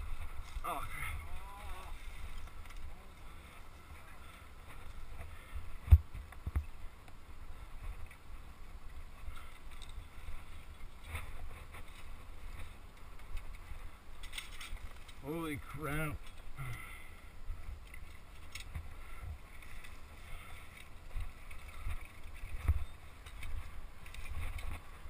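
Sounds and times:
bike rumbling and rattling on rocks: 0:17.6 - 0:25.0.

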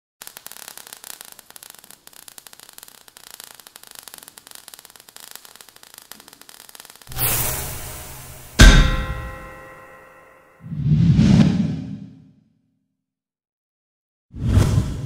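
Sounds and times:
faint crackling and hissing sparks: 0:00.2 - 0:10.2.

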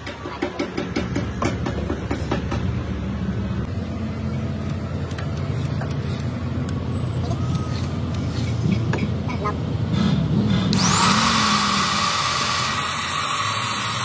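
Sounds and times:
drill boring into steel: 0:10.7 - 0:14.0.

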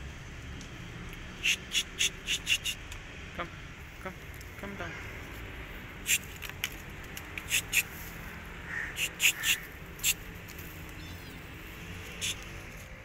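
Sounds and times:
kitten claws scraping bark: 0:06.1 - 0:08.0.

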